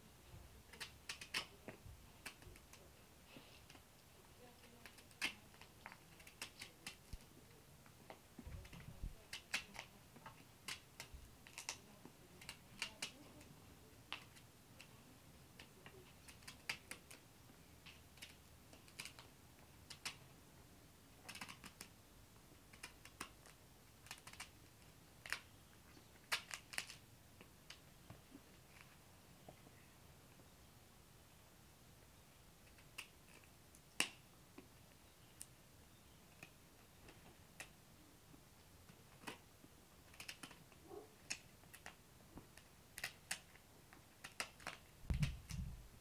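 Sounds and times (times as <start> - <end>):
dull low thumps: 45.1 - 46.0.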